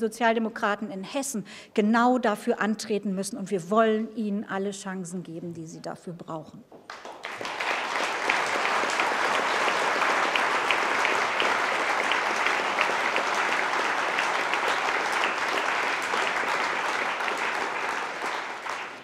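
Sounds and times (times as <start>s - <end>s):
audience applauding: 6.9s - 19.0s.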